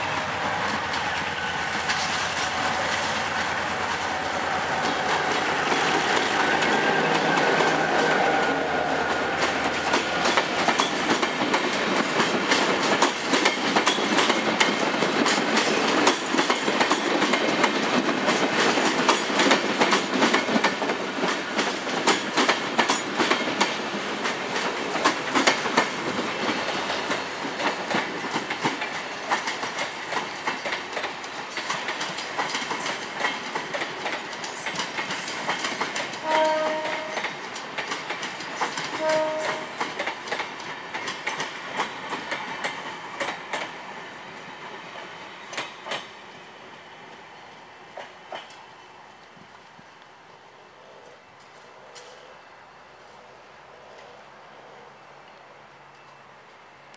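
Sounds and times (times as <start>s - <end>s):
train wheels clickety-clack: 0.0s - 46.2s, 47.8s - 49.9s
train horn note: 36.2s - 37.2s, 38.9s - 39.8s.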